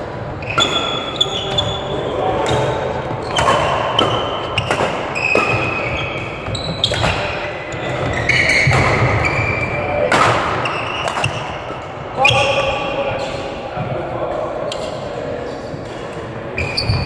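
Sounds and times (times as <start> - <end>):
shoes squeaking on court: 0.4 - 9.9, 16.5 - 17.0
racket striking shuttlecock: 3.3 - 7.3, 10.1 - 11.9.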